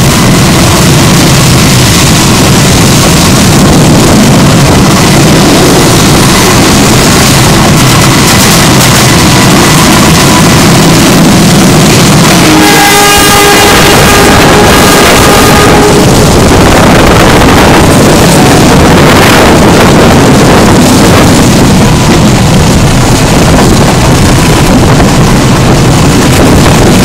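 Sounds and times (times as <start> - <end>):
train wheels rumbling on rails: 0.0 - 27.0
wind buffeting microphone: 0.0 - 27.0
long pitched tone with overtones: 10.2 - 20.6.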